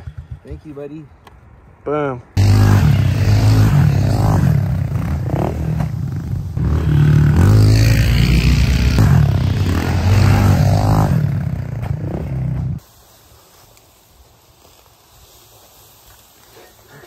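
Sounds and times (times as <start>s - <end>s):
dirt bike engines revving: 2.4s - 12.8s.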